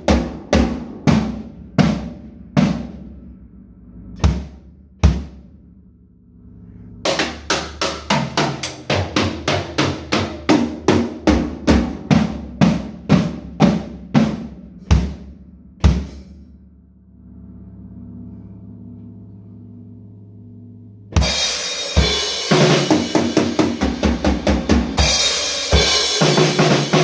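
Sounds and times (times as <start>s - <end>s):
drum kit played with sticks: 0.0s - 3.6s, 4.2s - 5.5s, 7.1s - 16.5s, 21.1s - 27.0s
bass drum thumps: 4.2s - 5.5s.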